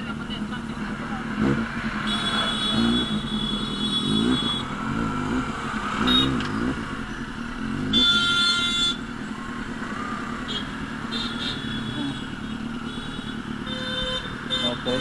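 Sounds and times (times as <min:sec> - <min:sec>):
motorcycle engine revving: 0:00.0 - 0:15.0
vehicle horns honking: 0:01.4 - 0:06.8, 0:07.7 - 0:09.2, 0:10.1 - 0:15.0.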